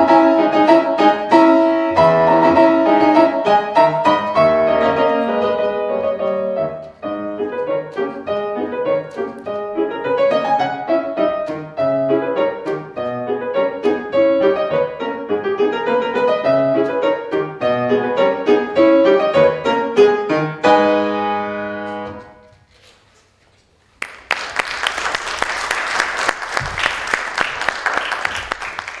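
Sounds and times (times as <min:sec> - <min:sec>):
grand piano playing: 0:00.0 - 0:22.5
audience applause: 0:24.0 - 0:29.0.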